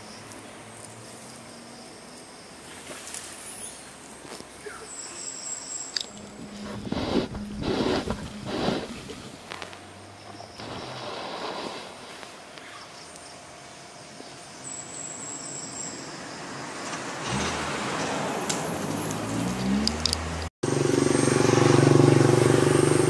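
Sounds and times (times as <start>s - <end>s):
low mechanical drone: 6.0s - 11.1s.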